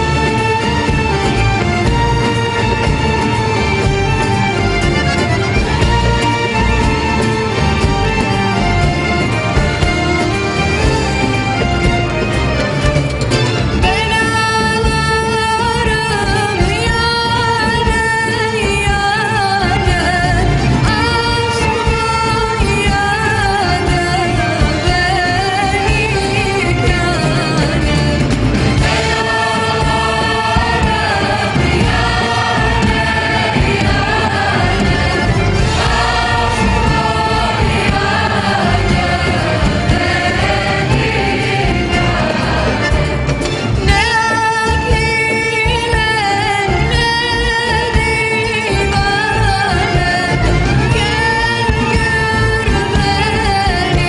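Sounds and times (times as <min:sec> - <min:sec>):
instrumental accompaniment: 0:00.0 - 0:54.0
woman singing: 0:13.8 - 0:34.9, 0:43.8 - 0:54.0.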